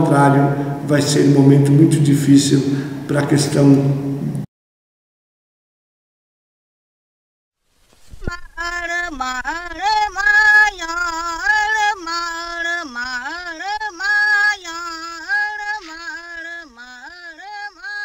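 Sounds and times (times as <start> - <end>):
woman singing unaccompanied: 8.2 - 18.0.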